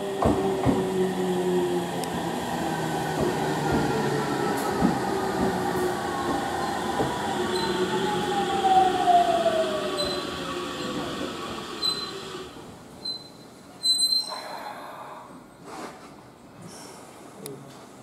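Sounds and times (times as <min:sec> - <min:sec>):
electric train rolling rumble: 0:00.0 - 0:13.2.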